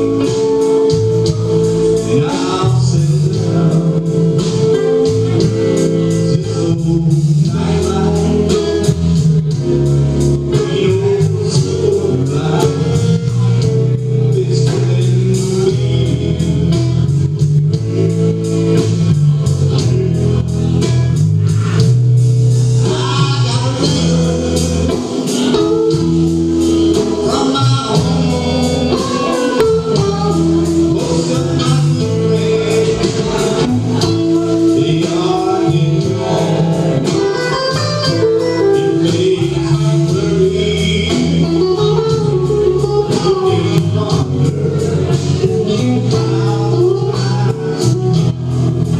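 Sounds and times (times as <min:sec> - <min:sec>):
person singing: 0:00.0 - 0:22.0, 0:22.7 - 0:48.9
live rock band playing: 0:00.0 - 0:48.9.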